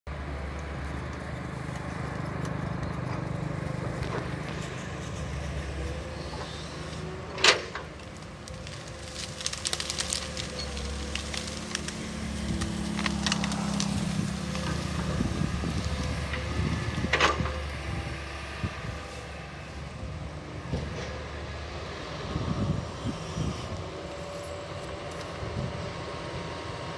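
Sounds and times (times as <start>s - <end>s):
excavator diesel engine: 0.1s - 26.9s
crackling: 4.0s - 17.8s.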